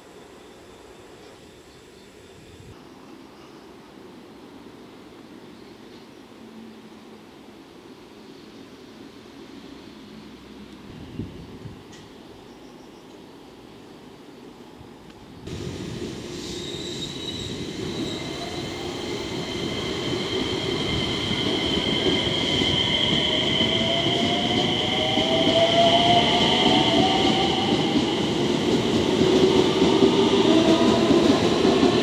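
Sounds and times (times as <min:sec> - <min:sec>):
rumbling train wheels: 0:15.5 - 0:32.0.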